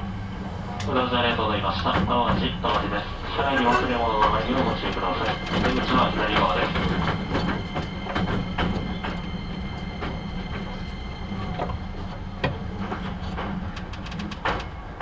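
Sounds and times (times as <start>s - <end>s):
train running rumble: 0.0s - 15.0s
wheels clicking over rail joints: 0.8s - 15.0s.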